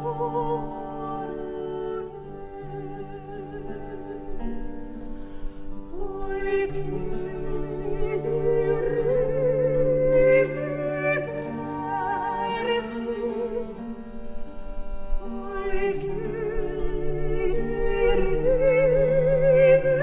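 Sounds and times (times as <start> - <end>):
person singing with vibrato: 0.0 - 4.8, 5.6 - 20.0.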